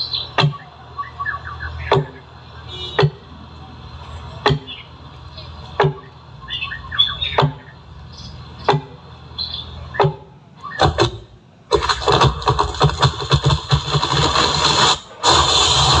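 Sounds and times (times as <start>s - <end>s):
bright hiss: 14.4s - 16.0s.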